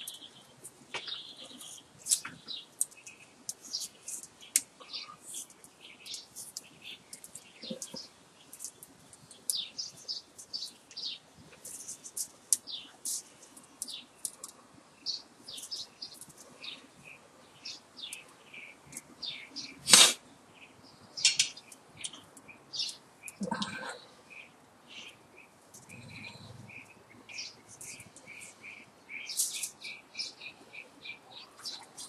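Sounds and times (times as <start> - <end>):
wire scraping and rustling: 0.0 - 14.7, 27.4 - 28.6, 29.3 - 29.9.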